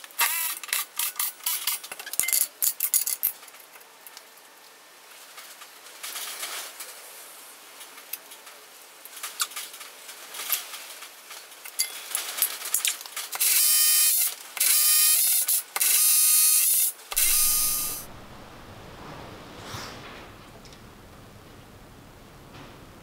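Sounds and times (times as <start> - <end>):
drill boring into concrete: 13.4 - 18.1.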